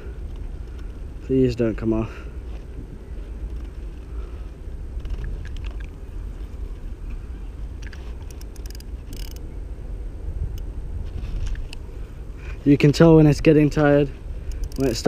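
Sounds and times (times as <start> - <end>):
low outdoor rumble: 0.0 - 15.0
faint ticks: 7.8 - 9.4, 14.4 - 15.0.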